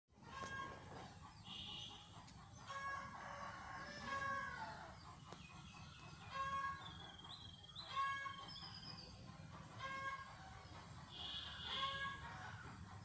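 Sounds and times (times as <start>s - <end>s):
chickens calling: 0.2s - 13.0s
rooster crowing: 2.7s - 4.9s.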